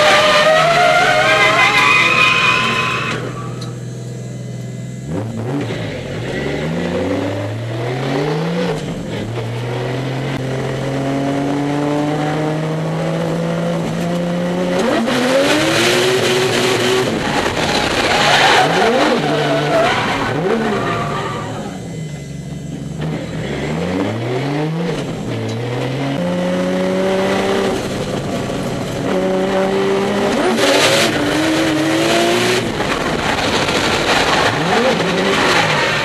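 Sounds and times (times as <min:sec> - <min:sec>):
tyres squealing: 0:00.0 - 0:03.6
car engine revving: 0:00.0 - 0:36.0.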